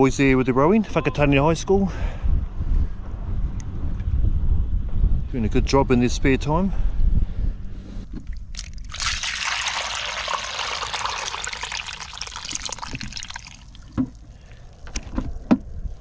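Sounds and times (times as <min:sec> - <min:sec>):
water pouring into a colander: 0:08.6 - 0:14.2.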